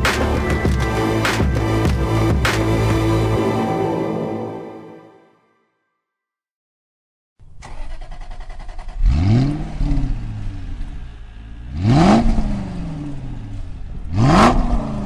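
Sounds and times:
car engine idling and revving: 0:07.4 - 0:15.0.

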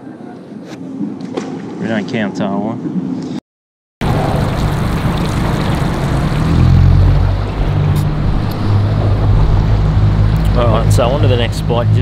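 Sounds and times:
outboard motor running: 0:04.0 - 0:11.9
wind and water rushing: 0:04.0 - 0:12.0.

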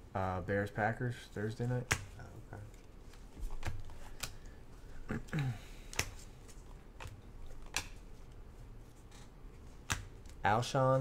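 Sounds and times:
trading cards clicking: 0:03.5 - 0:04.6, 0:05.8 - 0:08.4, 0:09.1 - 0:10.4.

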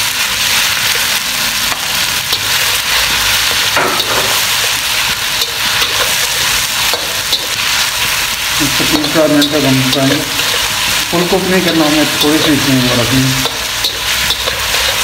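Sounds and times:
chicken sizzling in hot oil: 0:00.0 - 0:15.0
spatula scraping a pan: 0:13.3 - 0:15.0.

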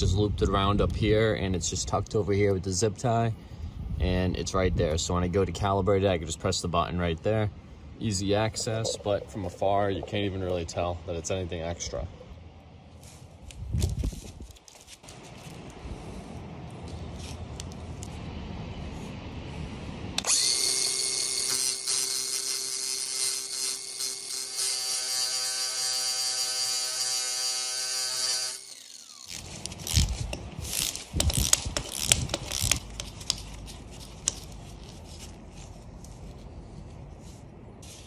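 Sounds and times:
angle grinder grinding metal: 0:20.2 - 0:32.8.

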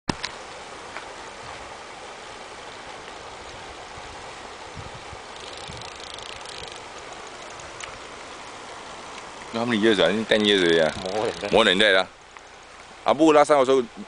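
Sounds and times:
wind on microphone: 0:03.5 - 0:06.8
fishing reel ticking: 0:05.3 - 0:08.0, 0:10.3 - 0:11.8.

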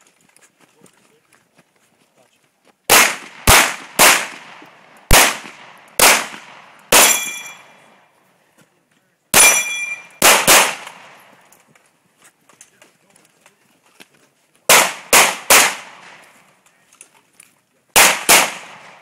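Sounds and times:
pistol shots with echo: 0:02.9 - 0:07.9, 0:09.3 - 0:11.3, 0:14.7 - 0:16.4, 0:17.9 - 0:19.0
steel target ringing: 0:07.0 - 0:07.9, 0:09.4 - 0:10.2.

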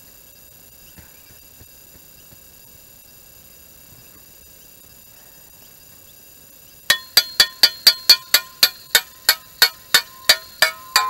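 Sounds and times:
rapid ringing clinks: 0:06.9 - 0:11.0.

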